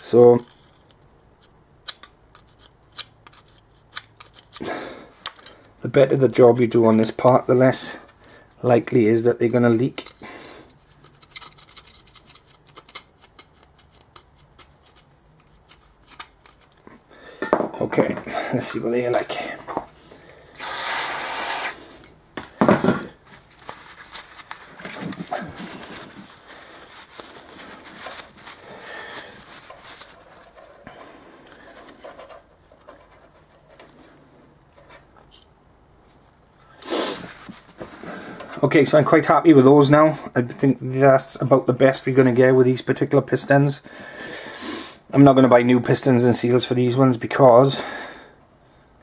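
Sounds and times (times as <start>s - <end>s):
small clicks of caliper handling: 0.5s - 4.6s, 5.2s - 5.5s, 10.9s - 16.8s.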